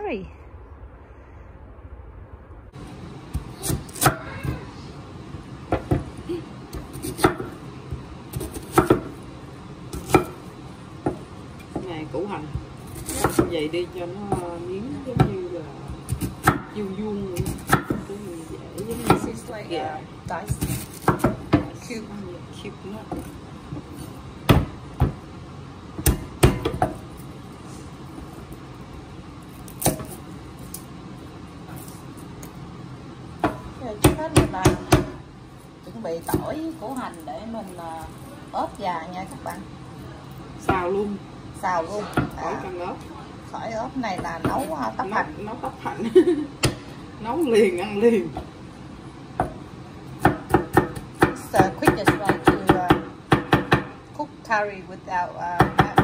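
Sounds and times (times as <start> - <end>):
knife chopping on wooden board: 8.3 - 9.2, 20.5 - 21.7, 26.0 - 27.0, 50.2 - 54.0.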